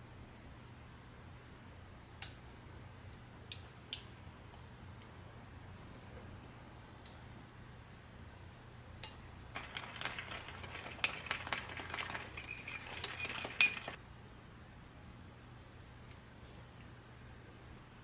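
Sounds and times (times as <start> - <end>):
metal utensils clinking on dishware: 9.6 - 14.0.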